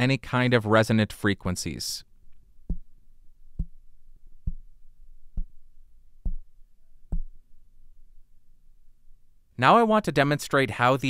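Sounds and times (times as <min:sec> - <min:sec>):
fingers tapping on a microphone: 0:02.6 - 0:02.9, 0:03.5 - 0:03.8, 0:04.4 - 0:04.7, 0:05.3 - 0:05.6, 0:06.2 - 0:06.5, 0:07.1 - 0:07.4.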